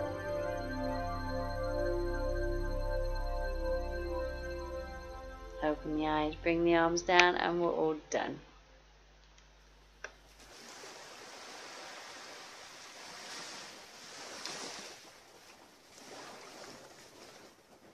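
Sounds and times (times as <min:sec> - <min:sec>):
small waves lapping on shore: 0:10.4 - 0:17.9.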